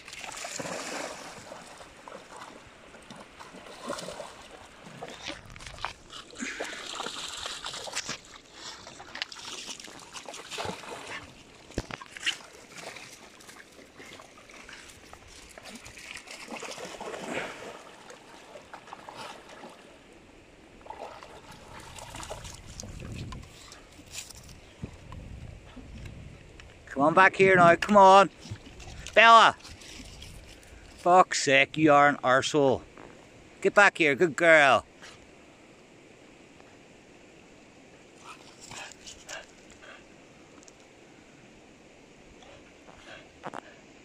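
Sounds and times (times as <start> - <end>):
dogs splashing through water: 0.0 - 20.1, 20.8 - 24.1
river trickling over stones: 0.0 - 24.8.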